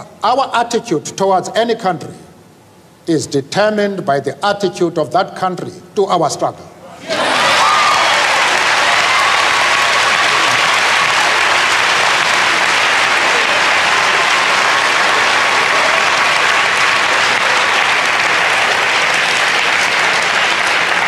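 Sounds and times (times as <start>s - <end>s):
large audience applauding: 7.1s - 21.0s.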